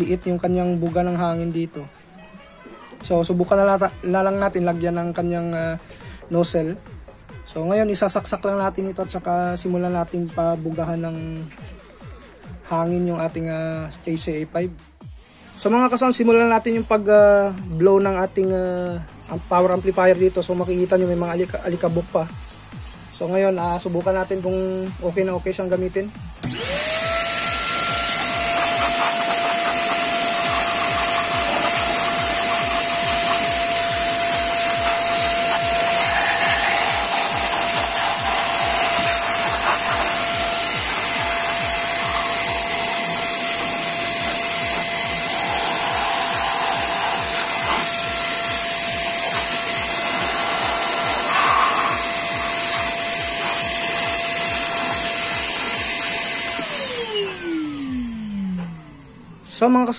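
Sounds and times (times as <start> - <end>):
vacuum cleaner motor whining: 19.0 - 59.8
rush of air from nozzle: 27.4 - 55.7.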